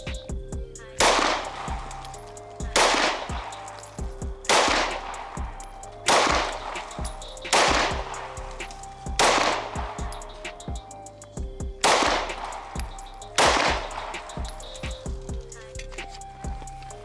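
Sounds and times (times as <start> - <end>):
pistol shots: 1.0 - 10.3, 11.8 - 15.1.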